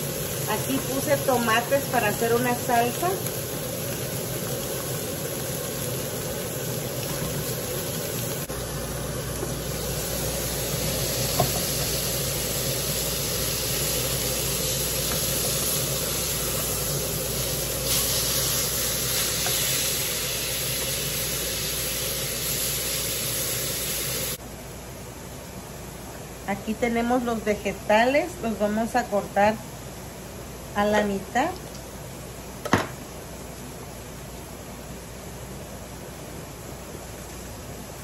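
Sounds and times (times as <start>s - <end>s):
steak sizzling in frying pan: 0.0s - 24.4s.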